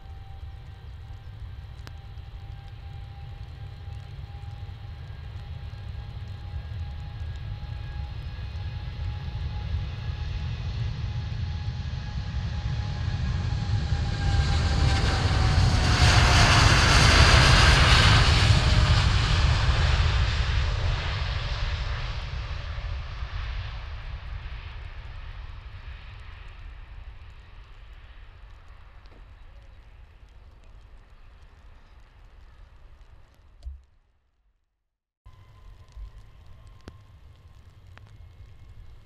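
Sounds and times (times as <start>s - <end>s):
airliner flying past: 0.0s - 29.2s.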